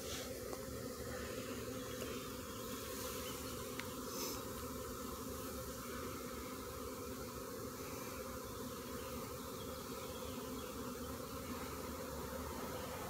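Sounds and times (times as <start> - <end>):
swarm of bees buzzing: 0.0 - 13.0.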